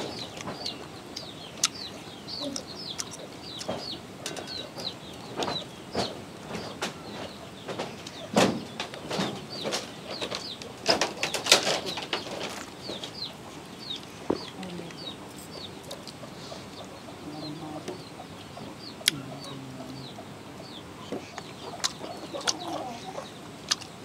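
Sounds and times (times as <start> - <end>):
small birds chirping: 0.0 - 24.0
knocks and clatter: 3.7 - 13.2.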